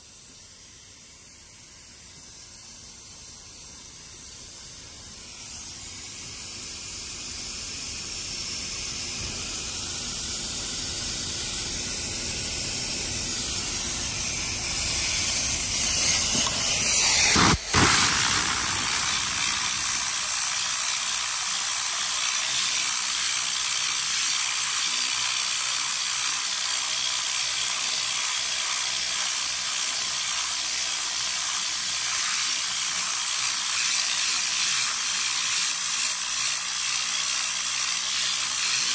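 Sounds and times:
steam cleaner hissing: 0:00.0 - 0:25.1.

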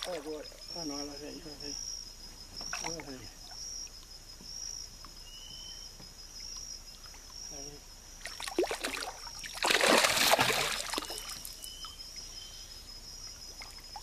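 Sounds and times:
fish splashing in water: 0:08.2 - 0:11.7.

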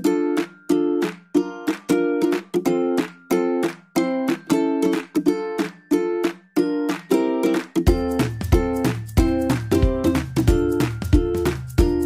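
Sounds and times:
ukulele strumming: 0:00.0 - 0:12.0.

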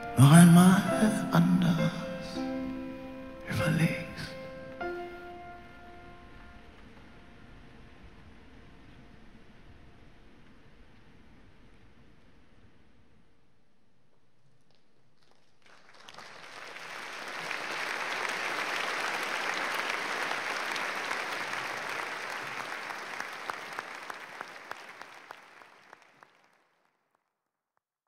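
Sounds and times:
audience applauding: 0:15.2 - 0:27.0.

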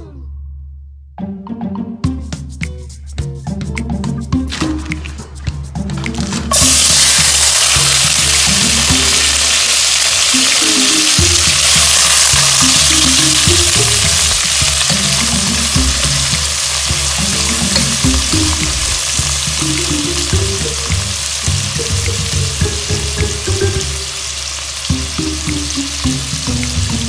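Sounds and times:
background music low melody: 0:00.0 - 0:27.0
vegetables sizzling in hot oil: 0:06.5 - 0:27.0.

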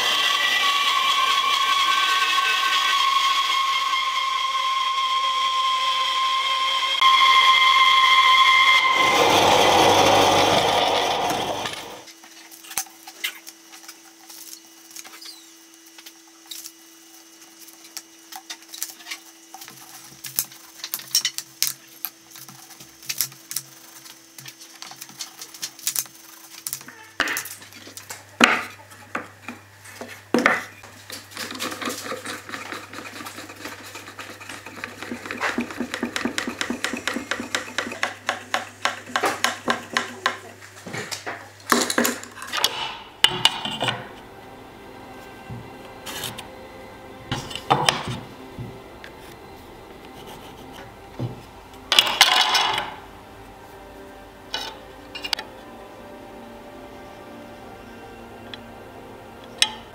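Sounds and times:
band saw cutting wood: 0:00.0 - 0:12.1, 0:30.8 - 0:40.6, 0:42.6 - 0:53.0
wooden strips clicking and knocking: 0:30.4 - 0:44.1.

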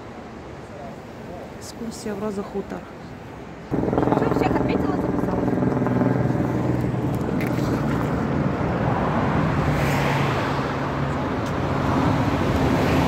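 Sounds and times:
vehicle engine hum and road noise: 0:03.7 - 0:13.0.

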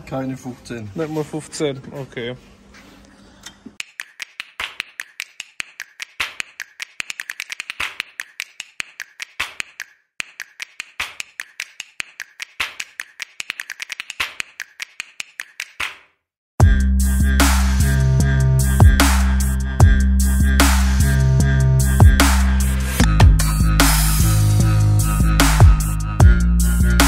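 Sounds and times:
sharp clicks and taps: 0:03.8 - 0:16.0.

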